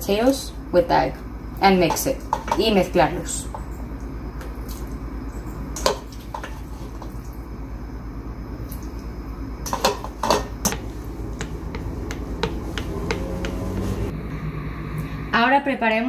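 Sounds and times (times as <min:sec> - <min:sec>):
steady low hum: 0:00.0 - 0:16.0
spoon knocking on colander and bowl: 0:09.7 - 0:14.1.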